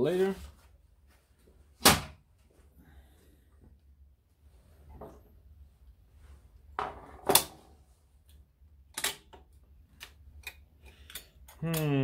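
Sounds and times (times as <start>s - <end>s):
small metal parts clicking: 10.0s - 11.9s.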